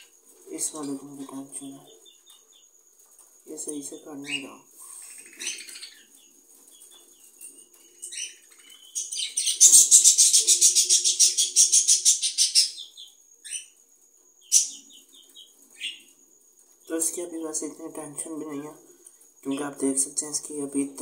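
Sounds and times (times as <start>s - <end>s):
parrots chirping: 3.6s - 13.8s, 14.4s - 16.2s.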